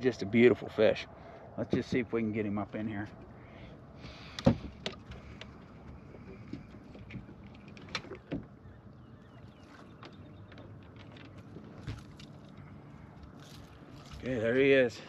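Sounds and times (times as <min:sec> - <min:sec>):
low steady rumble: 0:00.0 - 0:15.0
fishing gear clicks and knocks: 0:04.3 - 0:08.6, 0:09.6 - 0:14.3.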